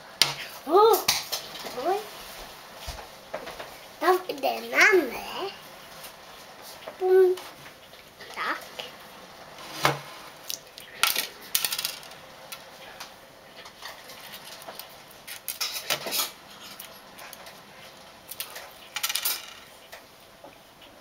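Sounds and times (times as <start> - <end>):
eggshell crackling: 10.3 - 12.7.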